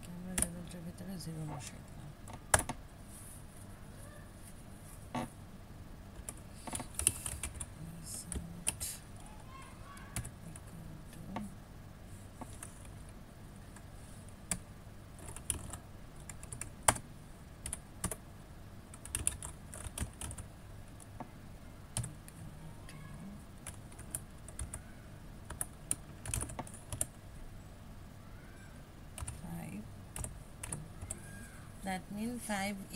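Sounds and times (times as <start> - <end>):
typing on computer keyboard: 2.3 - 2.8, 6.2 - 7.7, 10.2 - 10.7, 15.2 - 17.0, 17.6 - 18.2, 18.9 - 21.3, 22.0 - 23.0, 23.6 - 24.9, 25.5 - 27.2, 29.2 - 29.4, 30.2 - 31.4.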